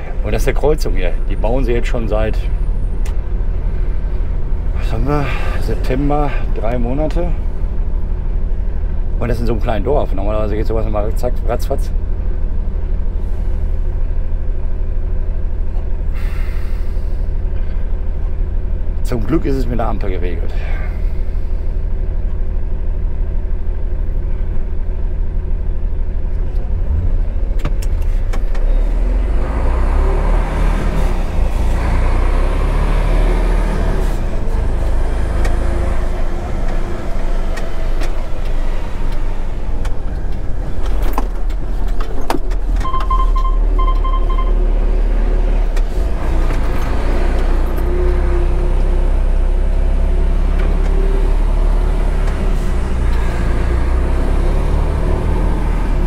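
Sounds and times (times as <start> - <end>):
truck diesel engine running: 0.0 - 56.0
short beeps: 42.8 - 44.6.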